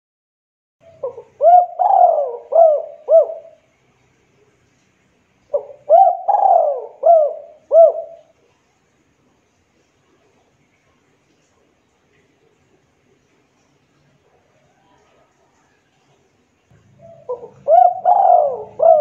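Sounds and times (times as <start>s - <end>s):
dove cooing: 0.8s - 3.7s, 5.5s - 8.3s, 16.7s - 19.0s.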